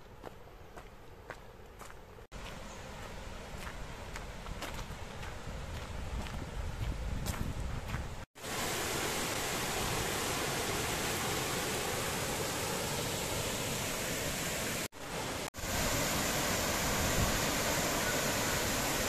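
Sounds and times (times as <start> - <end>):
stream and waterfall rushing: 2.4 - 5.9, 8.3 - 19.0.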